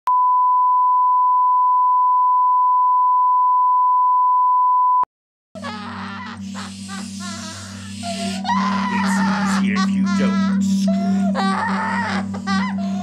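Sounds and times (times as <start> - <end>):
music: 5.6 - 13.0.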